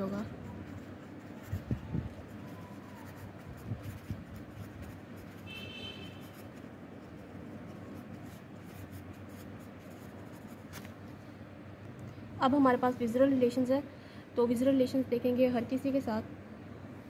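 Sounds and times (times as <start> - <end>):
pen scratching on paper: 0.0 - 11.0.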